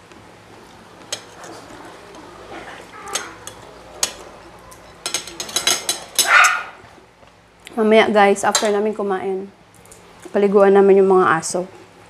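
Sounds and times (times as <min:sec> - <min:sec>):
cutlery clinking on plates: 0:01.1 - 0:06.6.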